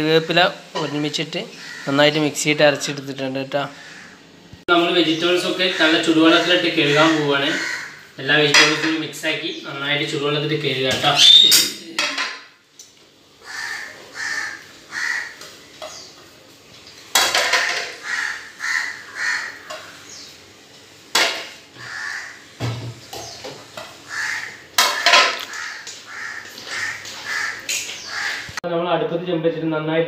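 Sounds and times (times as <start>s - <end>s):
crows cawing: 0.8s - 2.2s, 3.6s - 4.4s, 5.4s - 9.0s, 13.4s - 16.0s, 17.2s - 20.2s, 21.8s - 22.6s, 24.0s - 28.6s.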